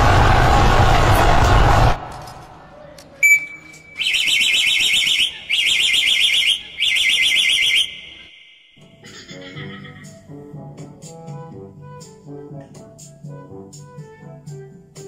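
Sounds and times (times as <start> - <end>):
car alarm click: 3.2 - 8.8
short steady beep: 3.2 - 8.8
warbling car alarm siren: 3.2 - 8.8.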